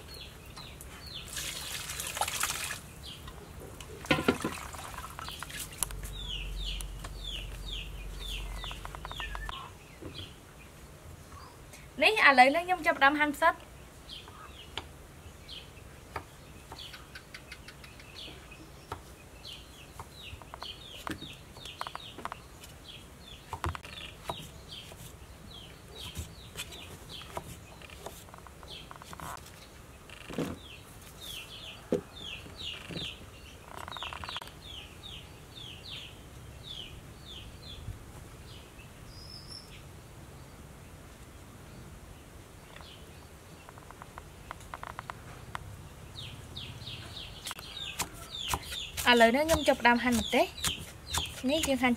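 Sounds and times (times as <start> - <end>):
birds chirping: 0.0 - 41.0, 41.6 - 51.9
knife slicing on wooden block: 47.5 - 51.8.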